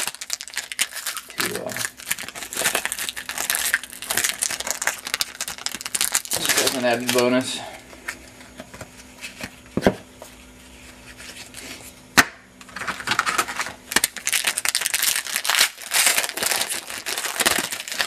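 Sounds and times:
foil wrapper crinkling: 0.0s - 7.5s, 12.7s - 18.0s.

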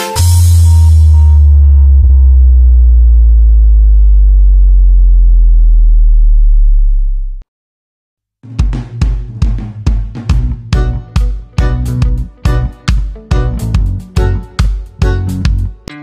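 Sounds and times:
sliding electronic bass note: 0.2s - 7.4s, 11.6s - 12.7s, 13.4s - 15.9s
drum beat: 8.4s - 15.8s.

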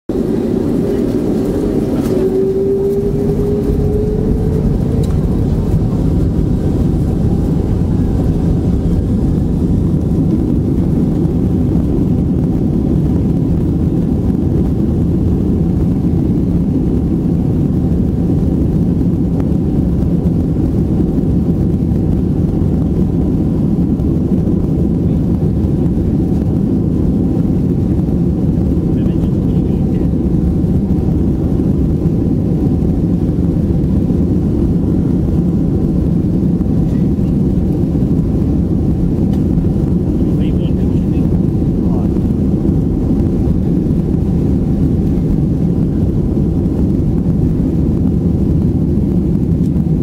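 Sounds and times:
jet engines spooling up: 0.1s - 15.2s.

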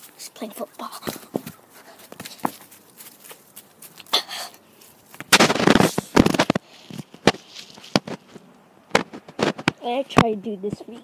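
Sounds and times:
sharp pops and knocks: 5.2s - 10.8s.

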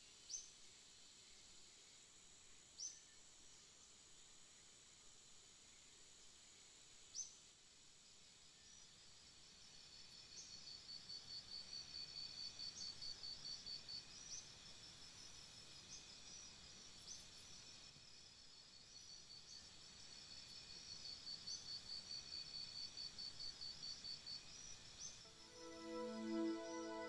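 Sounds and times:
soft hiss: 24.5s - 27.0s
short rising high note: 25.3s - 27.0s.

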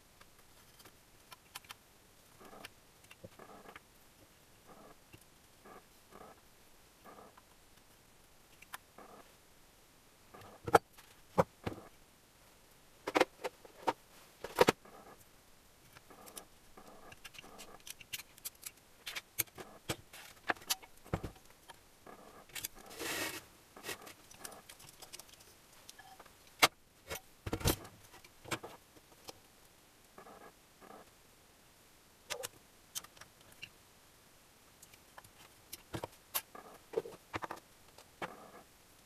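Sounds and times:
small metal parts clicking and scraping: 15.9s - 21.0s, 22.5s - 26.2s.

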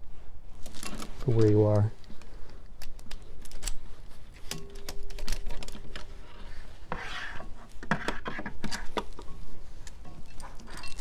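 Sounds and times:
rubbing and scraping: 5.5s - 11.0s.

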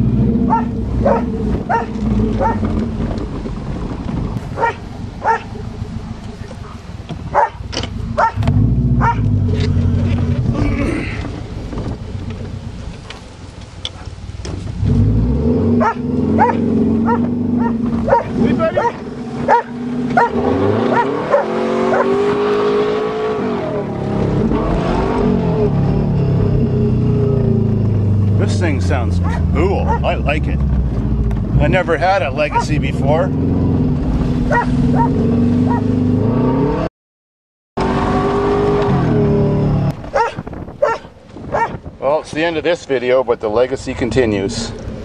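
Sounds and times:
car engine revving: 0.0s - 36.9s, 37.8s - 41.9s
dog yipping: 0.5s - 2.6s, 4.6s - 5.5s, 7.3s - 7.6s, 8.2s - 9.2s, 15.8s - 22.1s, 29.2s - 30.1s, 32.5s - 32.8s, 34.5s - 35.9s, 40.1s - 41.8s.

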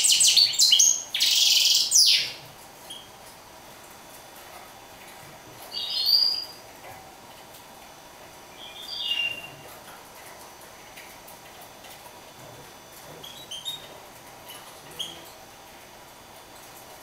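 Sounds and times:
finch chirping: 0.0s - 3.1s, 5.7s - 6.6s, 8.5s - 9.6s.

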